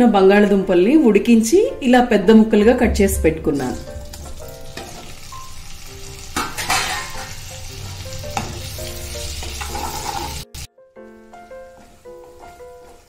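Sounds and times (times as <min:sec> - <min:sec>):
potatoes sizzling in hot oil: 0:03.8 - 0:10.7.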